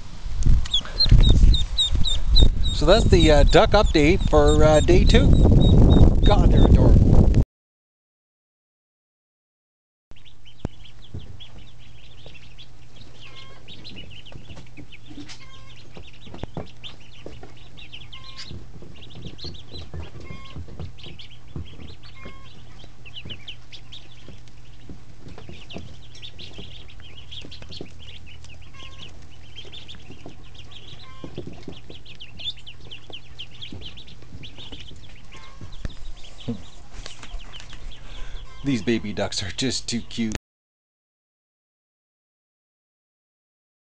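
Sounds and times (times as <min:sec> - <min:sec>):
ducklings peeping: 0:00.0 - 0:07.3, 0:10.1 - 0:40.4
steady low hum: 0:00.0 - 0:07.4, 0:10.2 - 0:40.4
soft knocks: 0:13.8 - 0:28.0.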